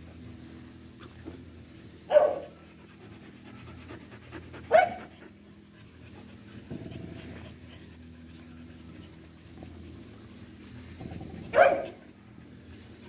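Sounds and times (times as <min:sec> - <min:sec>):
rough dog sound: 0:02.0 - 0:12.2
dog barks: 0:02.1 - 0:02.6, 0:04.7 - 0:05.1, 0:11.5 - 0:12.0.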